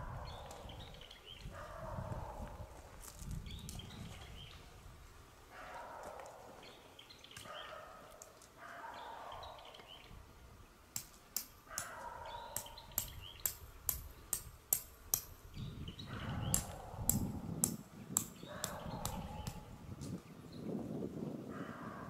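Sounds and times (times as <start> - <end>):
hammer striking tent peg: 12.6 - 15.4, 16.5 - 19.6.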